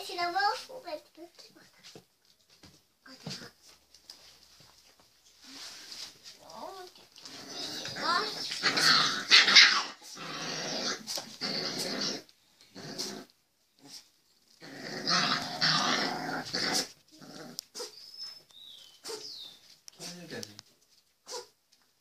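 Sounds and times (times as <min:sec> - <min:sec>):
puppies growling in play: 0:06.5 - 0:18.0.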